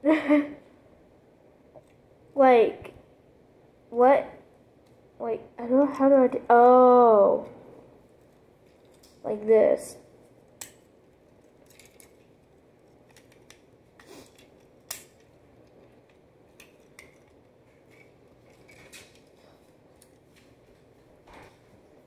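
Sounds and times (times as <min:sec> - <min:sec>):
plastic toy parts clicking and snapping: 0:10.6 - 0:12.3, 0:13.0 - 0:19.3.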